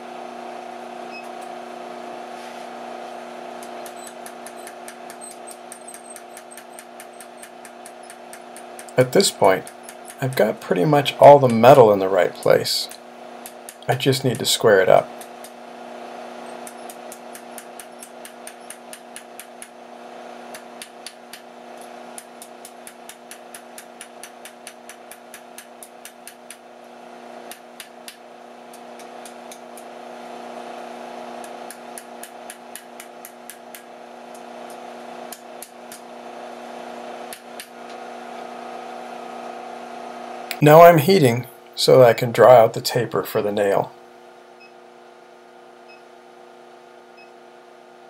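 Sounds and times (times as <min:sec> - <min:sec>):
steady low hum: 0:00.0 - 0:47.4
hammer tapping hot steel on anvil: 0:03.6 - 0:09.0, 0:22.1 - 0:26.6, 0:31.4 - 0:33.9.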